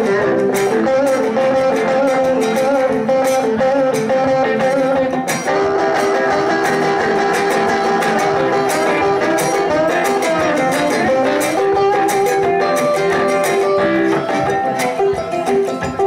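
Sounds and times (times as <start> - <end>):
electric guitars playing: 0.0 - 16.0.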